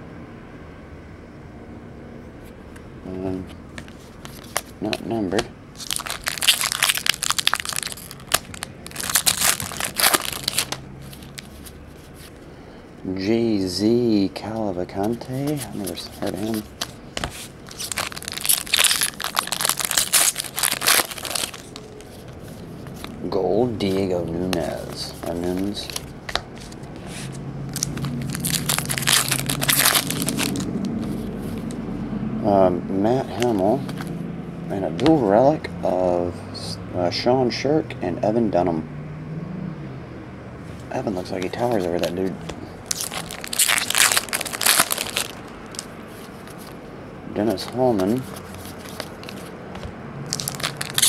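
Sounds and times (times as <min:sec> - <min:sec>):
foil wrapper crinkling: 0:05.8 - 0:12.4, 0:15.0 - 0:23.2, 0:23.8 - 0:31.7, 0:42.8 - 0:46.8, 0:50.3 - 0:51.0.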